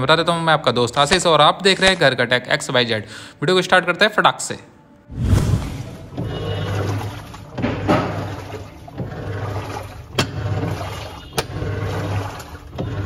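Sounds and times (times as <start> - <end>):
water swishing in washing machine: 5.7 - 13.0
washing machine drive humming: 6.0 - 13.0.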